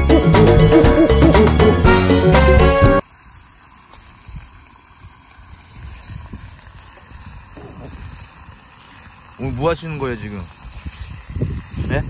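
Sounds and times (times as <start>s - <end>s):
wind rumble on microphone: 5.6s - 8.6s, 10.5s - 12.0s.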